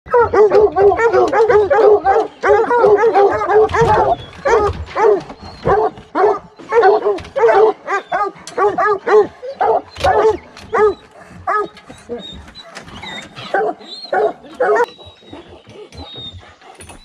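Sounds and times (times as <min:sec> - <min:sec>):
hounds barking excitedly: 0:00.1 - 0:17.0.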